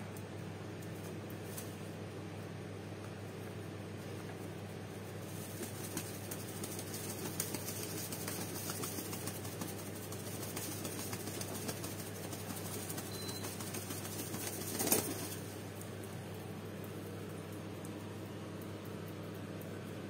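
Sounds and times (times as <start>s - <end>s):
steady low hum: 0.0s - 20.0s
pigeon wings flapping: 4.1s - 18.2s.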